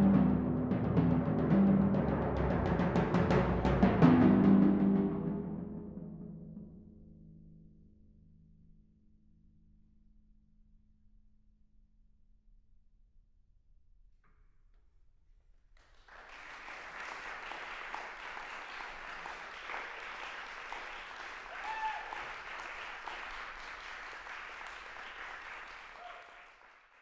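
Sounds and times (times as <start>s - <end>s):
audience applause: 15.8s - 27.0s.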